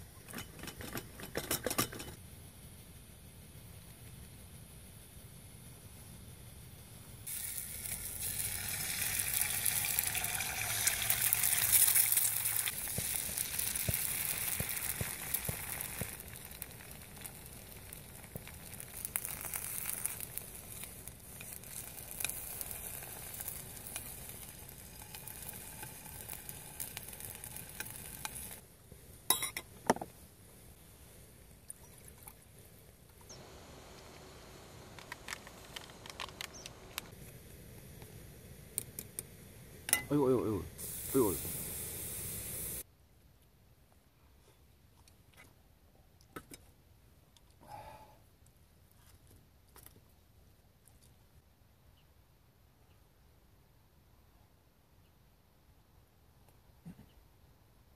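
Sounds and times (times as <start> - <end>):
eggs sizzling in oil: 7.2 - 28.6, 39.9 - 42.9.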